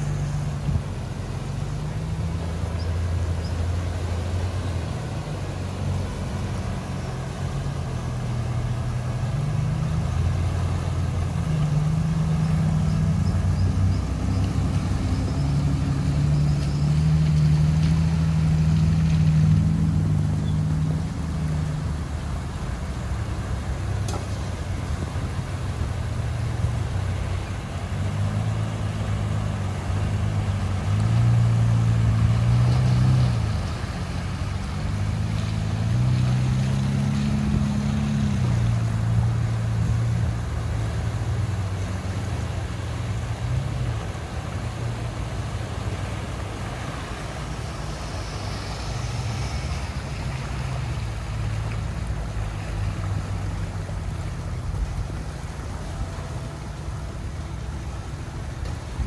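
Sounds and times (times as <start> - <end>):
engines running under load: 0.0 - 59.0
water splashing around wheels: 0.0 - 59.0.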